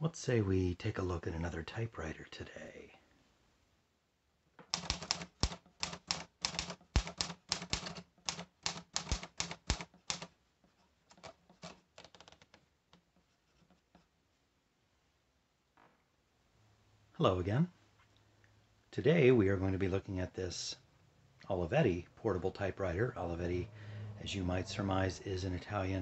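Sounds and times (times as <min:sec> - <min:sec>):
manual typewriter keystrokes: 0:04.7 - 0:10.3
pencil scratching on paper: 0:04.7 - 0:12.1, 0:13.0 - 0:14.1.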